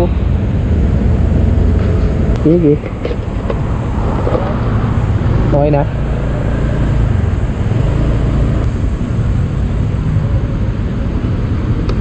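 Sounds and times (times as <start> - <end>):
wind and road noise: 0.0 - 12.0
scooter engine running: 2.8 - 10.4.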